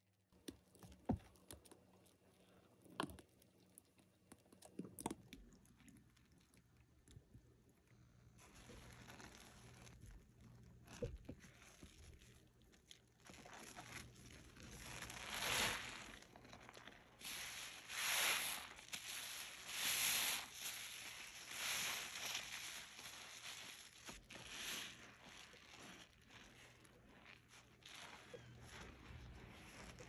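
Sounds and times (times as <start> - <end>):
sponge squishing: 8.3 - 30.0
wet hissing sponge squeezes: 13.2 - 30.0.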